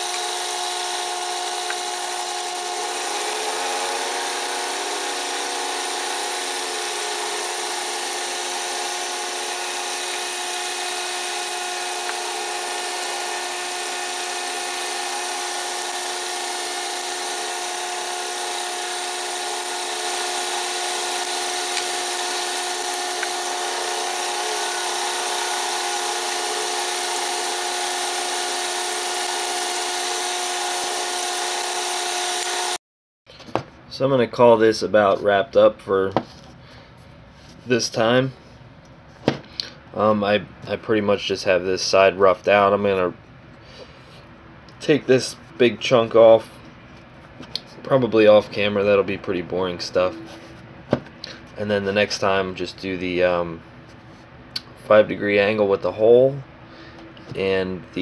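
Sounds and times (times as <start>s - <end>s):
milling machine whining: 0.0s - 32.8s.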